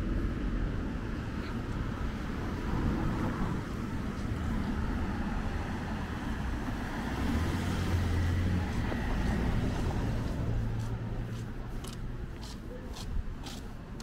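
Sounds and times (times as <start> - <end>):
traffic noise: 0.0 - 14.0
vehicle engine humming: 0.0 - 14.0.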